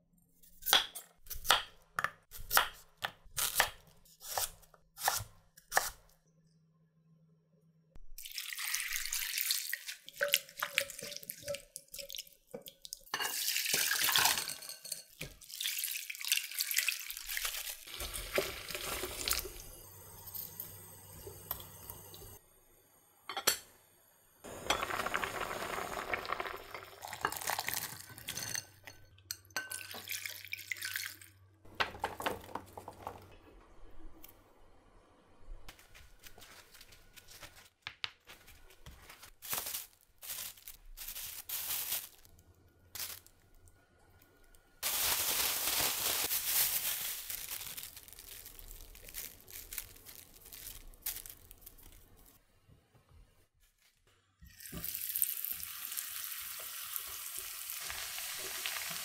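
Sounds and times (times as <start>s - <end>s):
water running from a tap: 15.5s - 22.4s.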